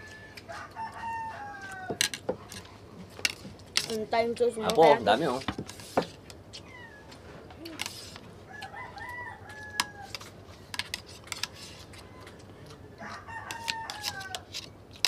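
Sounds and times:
rooster crowing: 0.0s - 2.1s, 8.5s - 10.3s, 12.0s - 14.5s.

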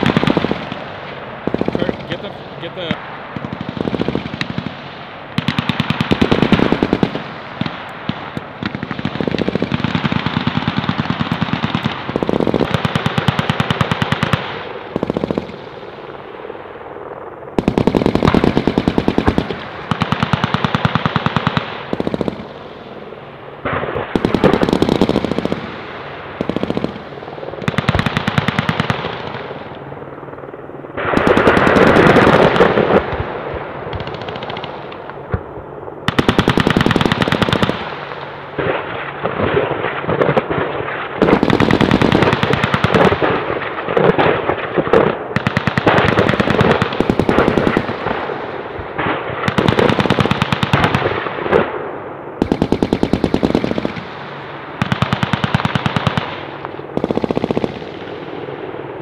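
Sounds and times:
machine-gun fire bursts: 0.0s - 15.8s, 17.6s - 22.7s, 23.7s - 29.7s, 31.0s - 33.3s, 33.9s - 35.0s, 36.1s - 51.7s, 52.4s - 58.3s.

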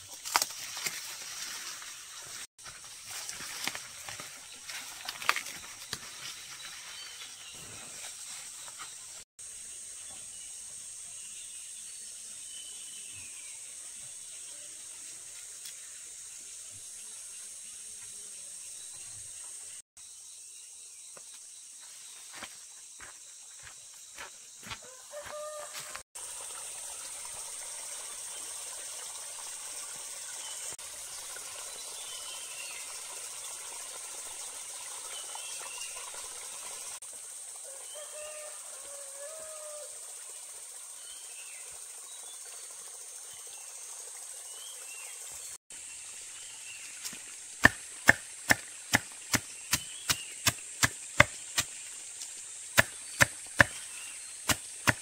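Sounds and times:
sharp chopping strokes: 47.0s - 51.8s, 52.7s - 55.0s.

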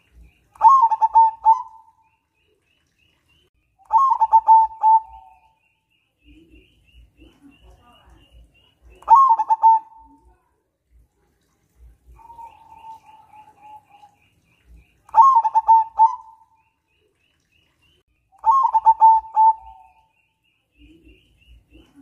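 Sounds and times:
dove cooing: 0.6s - 2.0s, 3.9s - 5.6s, 9.0s - 10.2s, 12.1s - 14.2s, 15.1s - 16.6s, 18.4s - 20.1s.

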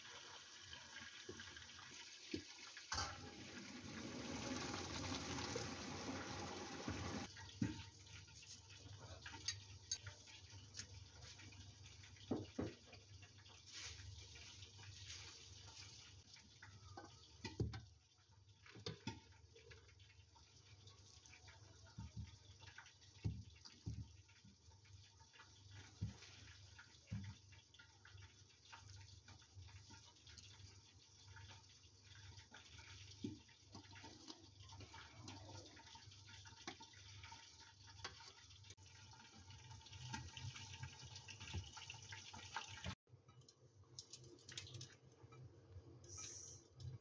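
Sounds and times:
water rushing into a colander: 0.0s - 17.6s.

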